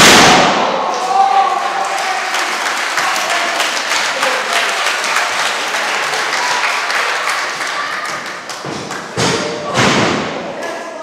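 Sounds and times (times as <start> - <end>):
crowd applauding: 0.9 - 9.3.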